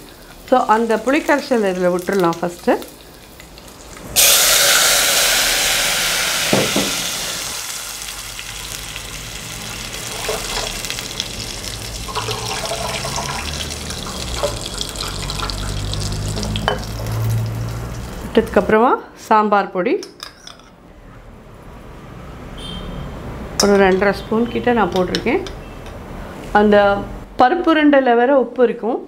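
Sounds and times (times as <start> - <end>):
liquid hissing in hot oil: 4.1 - 18.2
knock: 6.5 - 7.0
liquid pouring into pot: 12.0 - 17.8.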